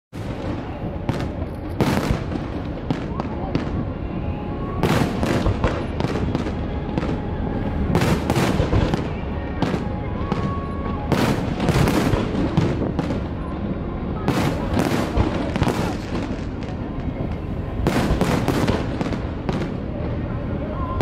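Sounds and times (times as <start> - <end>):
constant low din: 0.2 - 21.0
fireworks bursting: 0.2 - 21.0.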